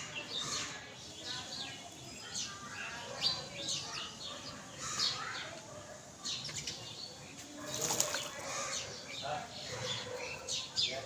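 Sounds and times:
birds chirping: 0.0s - 11.0s
pigeon flapping wings: 7.7s - 8.3s.

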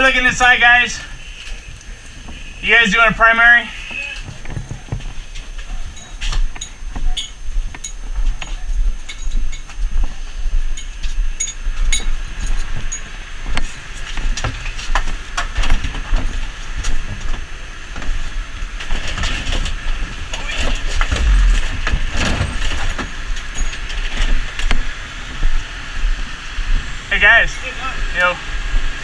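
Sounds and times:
engine rumble and hiss: 0.0s - 29.0s
footsteps: 3.7s - 18.3s, 20.7s - 23.4s.

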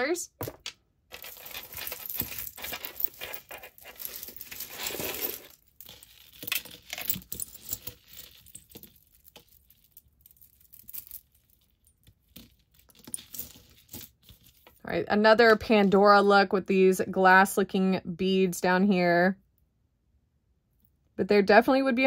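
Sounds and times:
jewelry clinking and rustling: 0.3s - 16.3s.

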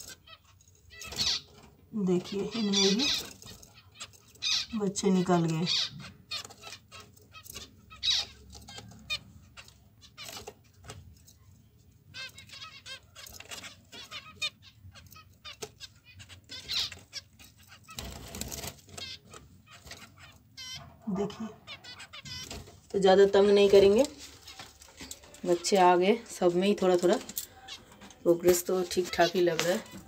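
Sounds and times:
small birds chirping: 0.0s - 30.0s
rustling: 12.0s - 20.8s, 21.8s - 30.0s.

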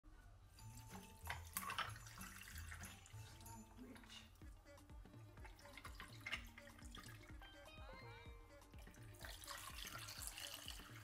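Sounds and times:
liquid pouring and trickling: 0.5s - 7.5s, 8.7s - 11.0s
ice clinking: 0.6s - 4.3s, 9.1s - 11.0s.

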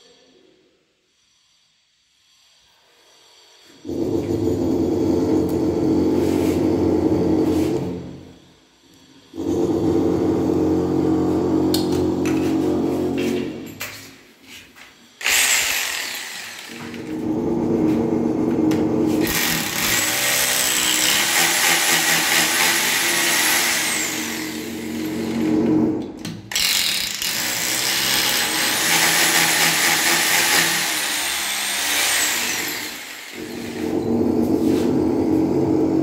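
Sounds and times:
power drill boring into tile: 15.2s - 17.3s, 19.2s - 25.8s, 26.5s - 34.2s.

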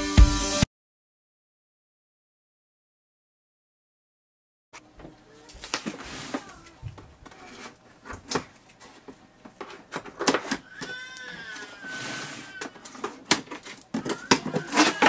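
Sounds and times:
scissors cutting packing tape: 12.8s - 15.0s.

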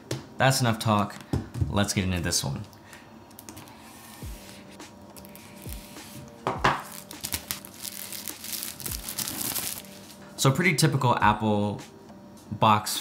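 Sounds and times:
plastic film rustling: 5.2s - 6.2s, 6.8s - 10.2s
box knocking on table: 6.4s - 6.8s
knife slitting plastic wrap: 6.8s - 10.1s.

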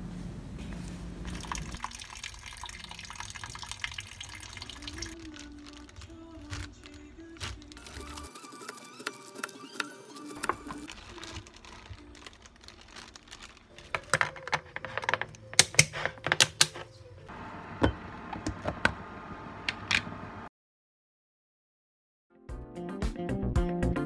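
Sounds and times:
plastic bag rustling: 0.8s - 17.0s
plastic lid latches clicking: 14.0s - 16.9s.

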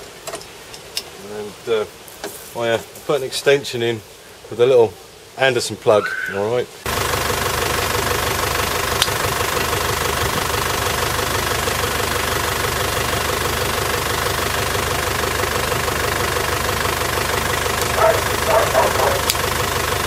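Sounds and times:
motor droning steadily: 6.9s - 20.0s.

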